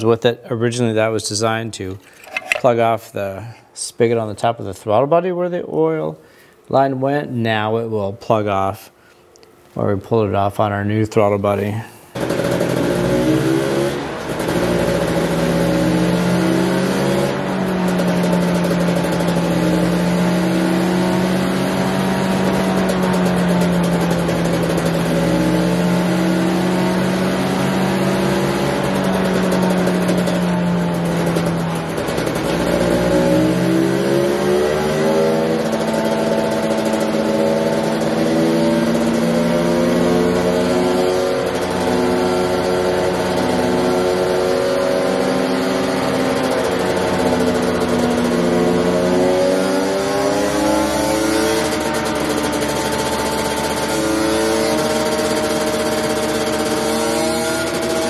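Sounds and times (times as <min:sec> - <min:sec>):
two-stroke engine revving: 0:12.2 - 0:58.0.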